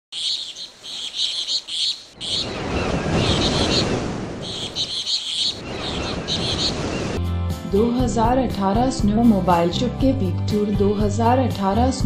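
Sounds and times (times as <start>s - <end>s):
birds chirping: 0.1s - 7.2s.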